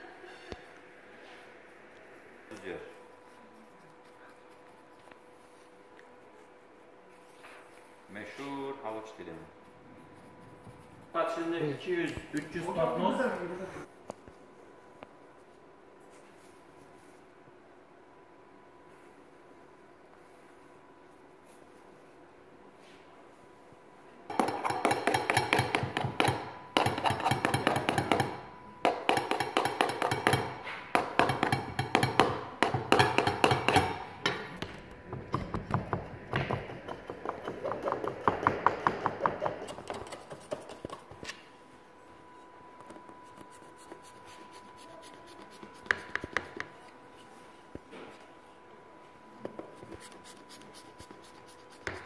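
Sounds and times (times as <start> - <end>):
metal tool tapping a tray: 24.3 - 34.4.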